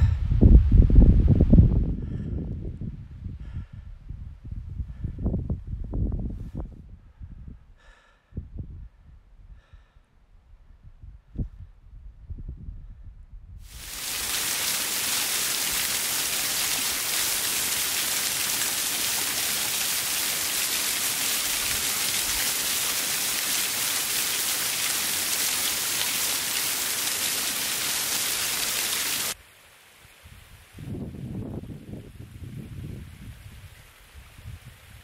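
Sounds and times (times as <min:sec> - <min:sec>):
falling water hissing: 0:13.7 - 0:29.4.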